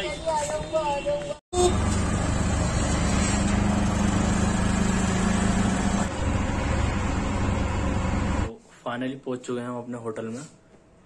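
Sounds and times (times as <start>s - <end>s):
road noise: 0.0s - 8.5s
auto-rickshaw engine running: 1.6s - 8.5s.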